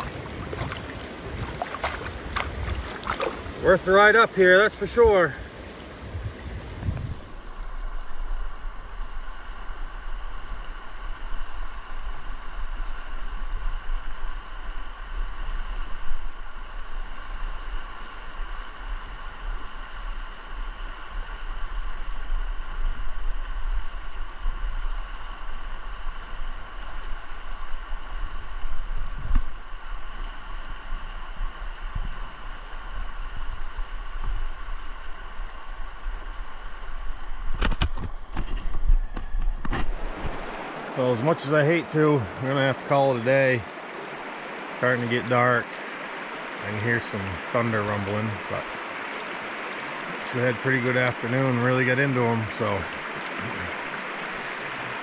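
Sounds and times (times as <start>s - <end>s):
river rushing over rocks: 0.0s - 7.9s, 39.8s - 55.0s.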